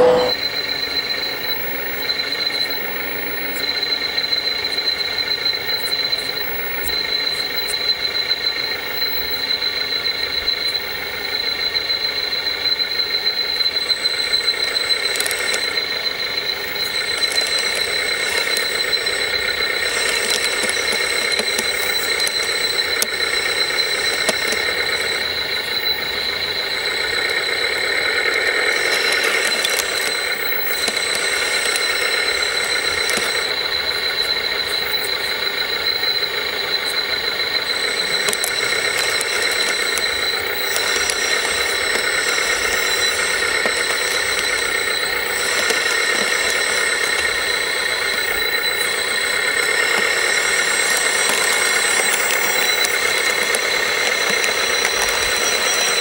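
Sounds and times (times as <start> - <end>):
model vehicle high-pitched whine: 0.0 - 56.0
faint clicks: 14.4 - 56.0.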